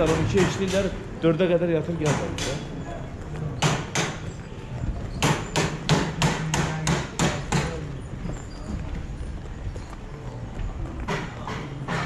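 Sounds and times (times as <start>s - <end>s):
sharp knocks echoing: 0.0s - 1.0s, 2.0s - 2.7s, 3.6s - 4.3s, 5.2s - 7.8s, 11.0s - 12.0s.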